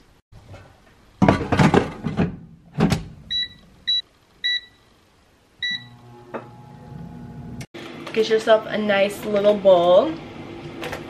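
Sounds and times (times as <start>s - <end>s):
short beeps: 3.3s - 4.8s, 5.6s - 6.0s
air fryer fan humming: 5.6s - 11.0s.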